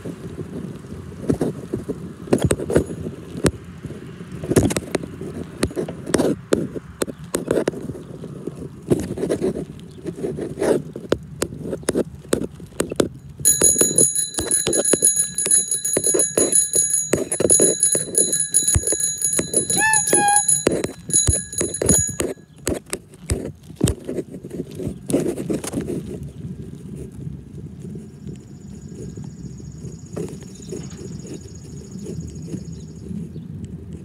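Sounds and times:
clatter on concrete path: 0.0s - 32.8s
small bell ringing rapidly: 13.4s - 22.5s.

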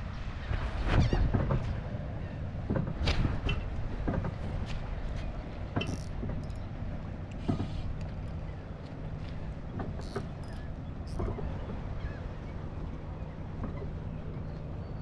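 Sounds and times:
fishing reel clicks: 5.8s - 6.6s, 10.0s - 11.3s.

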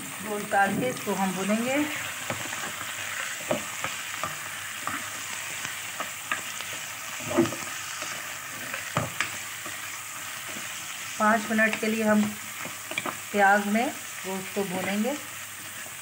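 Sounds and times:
meat and onions sizzling in oil: 0.0s - 16.0s
wooden spoon knocking and scraping pot: 1.9s - 5.2s, 5.8s - 10.7s, 11.4s - 13.2s.

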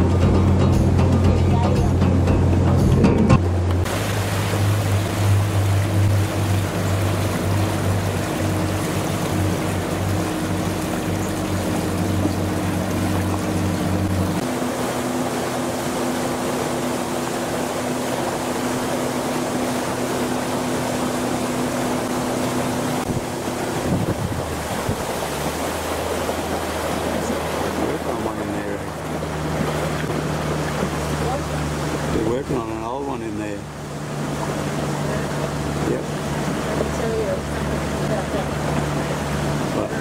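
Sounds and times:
motorboat engine running: 0.0s - 40.0s
water rushing past hull: 0.0s - 40.0s
wind buffeting microphone: 21.8s - 32.6s.

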